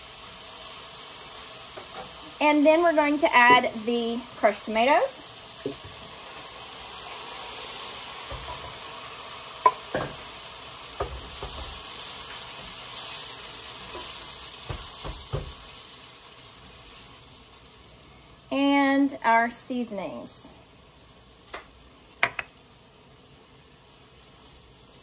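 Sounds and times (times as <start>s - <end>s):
tomatoes sizzling in a pan: 0.0s - 25.0s
wooden spoon knocking on pan: 3.4s - 3.8s, 8.3s - 8.7s, 11.0s - 11.8s, 14.6s - 15.6s, 22.2s - 22.5s.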